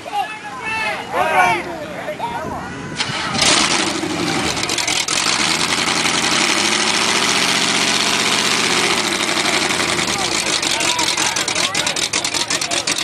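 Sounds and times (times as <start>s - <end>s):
truck engine revving under load: 3.0s - 13.0s.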